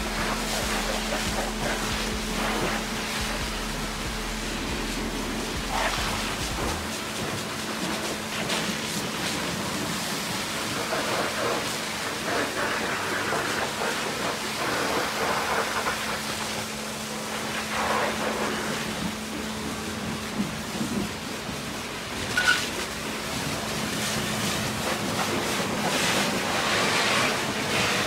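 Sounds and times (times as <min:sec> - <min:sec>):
faint low hum: 0:00.0 - 0:06.9
pressure washer jet hissing: 0:00.0 - 0:28.0.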